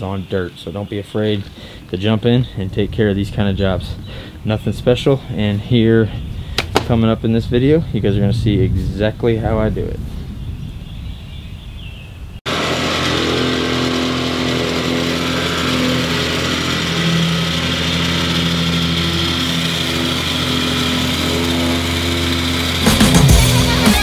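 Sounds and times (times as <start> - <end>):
plate compactor running: 12.5 - 24.0.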